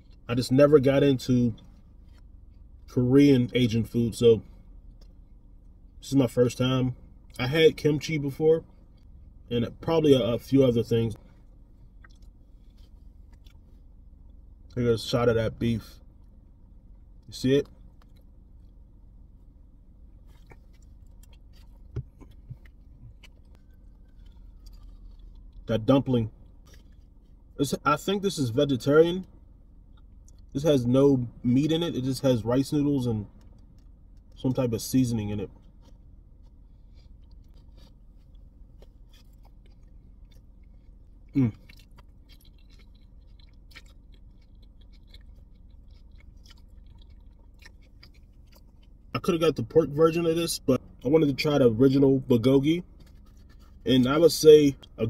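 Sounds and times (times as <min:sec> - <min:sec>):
low rumble inside car: 0:00.0 - 0:55.0
person chewing food: 0:11.2 - 0:14.8, 0:20.1 - 0:25.7, 0:26.4 - 0:27.5, 0:35.5 - 0:49.1, 0:52.8 - 0:53.9.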